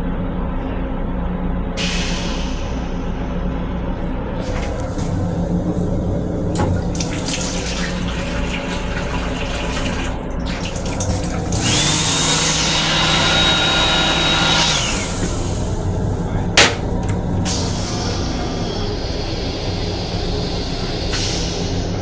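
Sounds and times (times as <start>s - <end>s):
low steady hum: 0.0s - 11.8s, 15.0s - 20.1s
water running into a sink: 6.6s - 12.1s
hand dryer whining: 11.0s - 15.9s, 16.6s - 17.5s.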